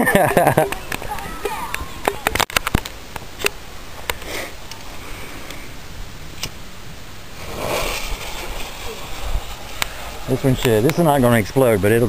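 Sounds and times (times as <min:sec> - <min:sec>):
firework hiss: 0:04.1 - 0:12.0
firework pops: 0:07.4 - 0:11.2.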